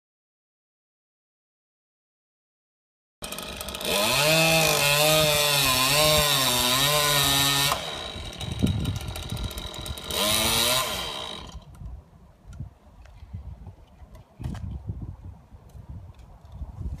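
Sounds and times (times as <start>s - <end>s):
chainsaw cutting wood: 3.2s - 11.8s.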